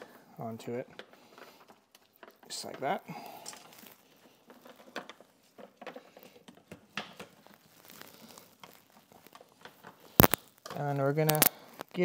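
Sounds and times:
clicks and rustling of wires: 0:00.0 - 0:12.0
sharp plastic clicks: 0:10.2 - 0:11.9.

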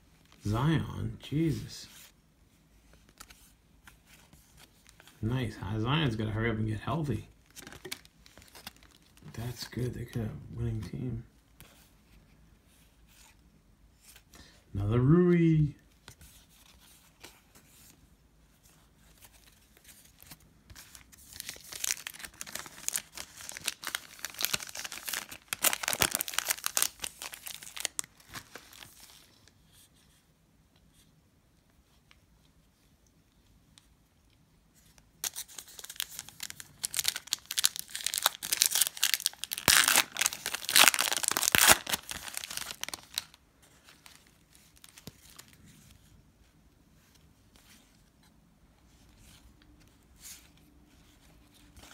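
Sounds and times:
foil wrappers tearing and crinkling: 0:21.3 - 0:28.9, 0:35.2 - 0:43.4.

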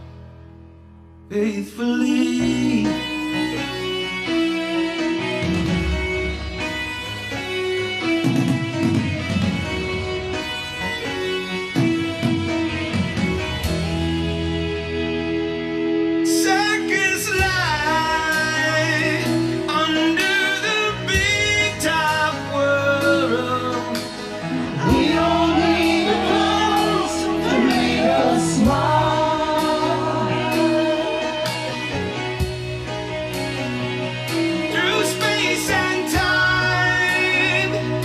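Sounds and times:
karaoke band backing track: 0:00.0 - 0:38.0
man and woman singing: 0:01.3 - 0:03.8, 0:24.7 - 0:31.8, 0:34.7 - 0:37.9.

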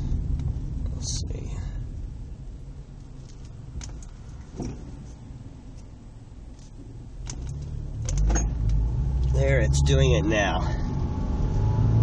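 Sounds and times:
light clicks in car cabin: 0:03.0 - 0:05.9.

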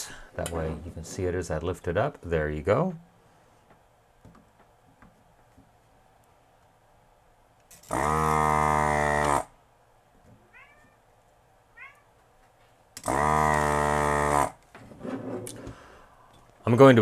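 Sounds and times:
desoldering vacuum pump buzzing: 0:07.9 - 0:09.5, 0:13.0 - 0:14.6.

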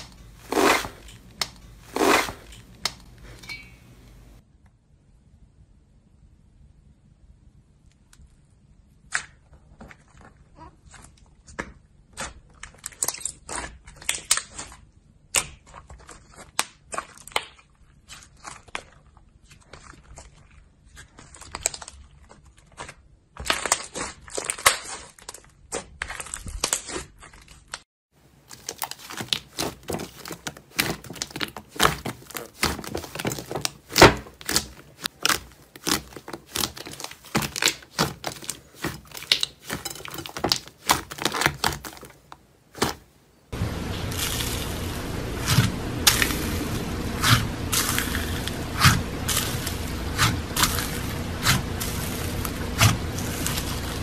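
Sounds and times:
hands kneading slime: 0:00.0 - 0:04.4, 0:08.2 - 0:43.2, 0:43.8 - 0:54.0.

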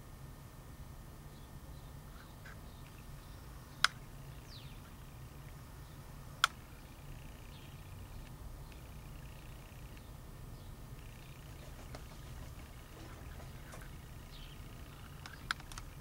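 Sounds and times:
faint low rumble: 0:00.0 - 0:16.0
sharp clicks: 0:03.8 - 0:04.0, 0:06.4 - 0:06.6, 0:15.0 - 0:16.0.

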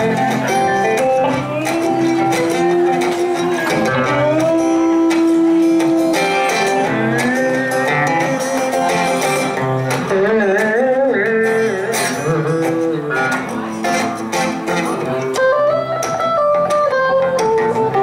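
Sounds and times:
backing electric guitar: 0:00.0 - 0:18.0
lead electric guitar: 0:00.0 - 0:18.0.

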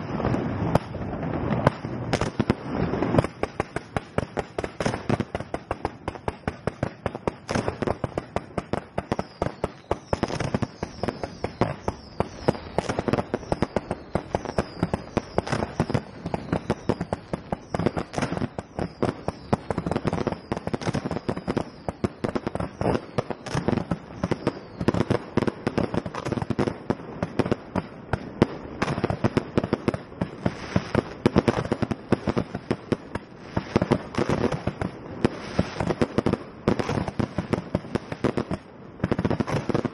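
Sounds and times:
fireworks bangs: 0:00.0 - 0:39.9
falling whistles: 0:09.2 - 0:20.6.

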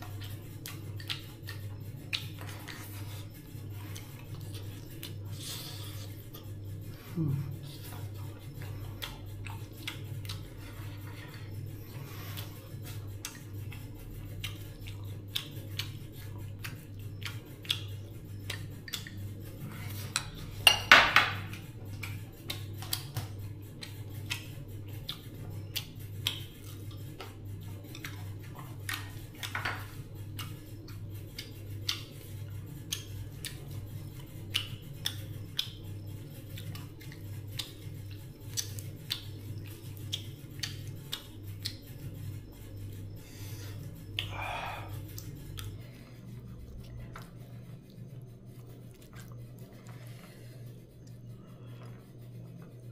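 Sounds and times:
dishes and utensils clinking: 0:20.6 - 0:21.5
low hum: 0:26.5 - 0:52.9.

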